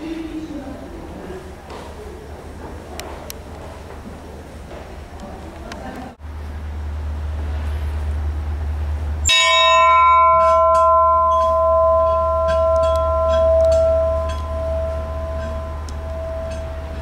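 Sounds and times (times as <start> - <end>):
brass ship's bell ringing: 9.2 - 17.0.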